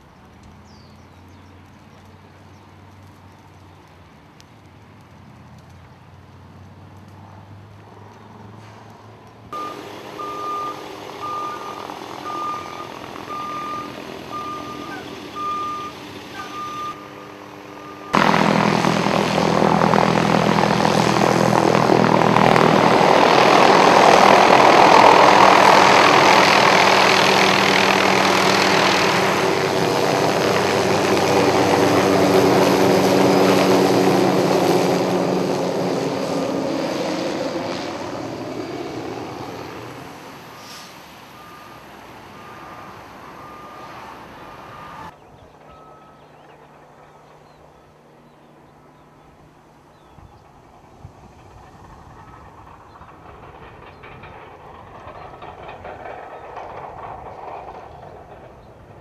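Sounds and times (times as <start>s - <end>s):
helicopter flying overhead: 0.0s - 59.0s
truck reversing beeper: 9.6s - 20.6s, 38.6s - 46.8s
truck engine idling: 9.6s - 45.2s.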